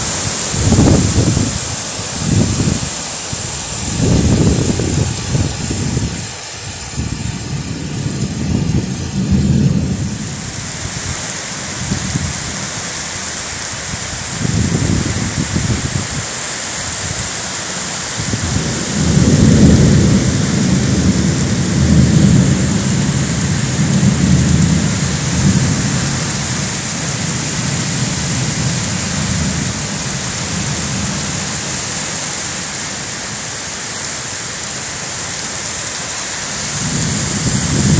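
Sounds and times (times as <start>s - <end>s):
low thunder rumbles: 0.0s - 12.8s, 18.2s - 31.8s, 36.6s - 37.9s
gusting wind: 0.0s - 37.9s
heavy rain hissing: 0.0s - 37.9s.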